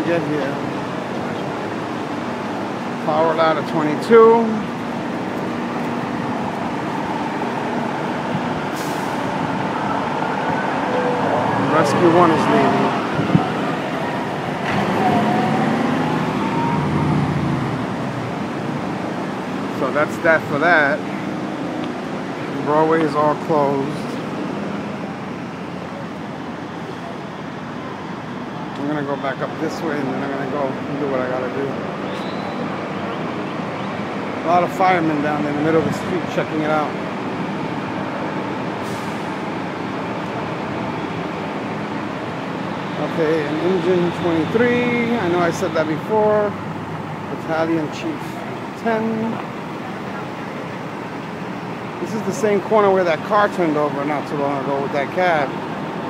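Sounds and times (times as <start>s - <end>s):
city street hum and rumble: 0.0s - 56.0s
engines running nearby: 0.0s - 56.0s.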